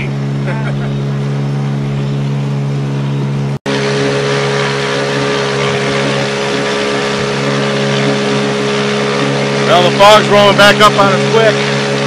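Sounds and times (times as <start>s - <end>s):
outboard motor droning: 0.0s - 12.0s
water noise: 0.0s - 12.0s.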